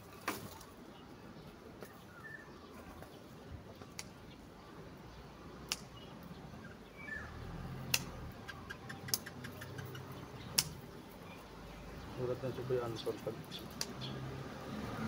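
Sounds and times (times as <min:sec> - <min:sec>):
bird chirp: 0:00.5 - 0:15.0
sharp clicks or snaps: 0:05.7 - 0:06.0, 0:07.8 - 0:08.2, 0:08.8 - 0:10.8, 0:13.7 - 0:14.0.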